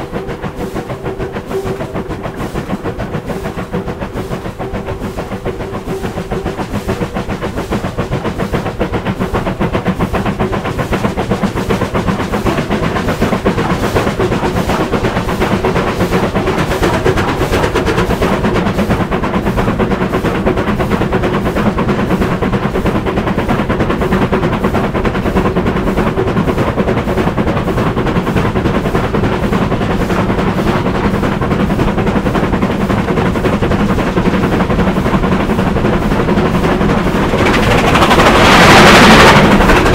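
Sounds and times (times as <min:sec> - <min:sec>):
steam locomotive exhaust beats: 0:00.0 - 0:39.9.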